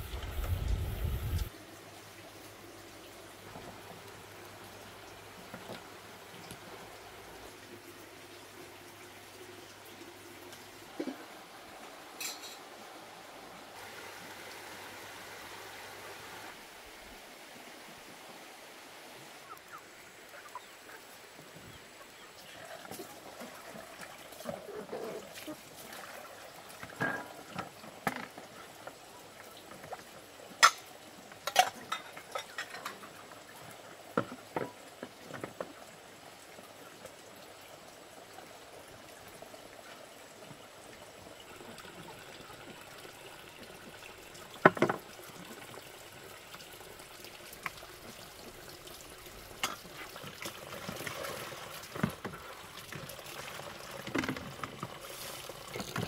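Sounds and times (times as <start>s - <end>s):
water splashing and pouring: 22.4s - 28.8s, 41.2s - 56.0s.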